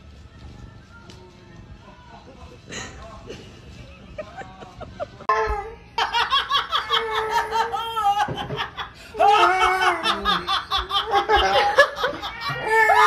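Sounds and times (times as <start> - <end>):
loud hearty laughter: 6.0 - 13.0.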